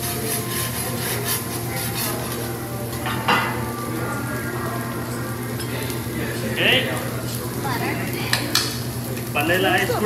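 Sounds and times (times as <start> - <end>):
metal spatula scraping griddle: 0.0 - 2.5
rice sizzling: 0.0 - 10.0.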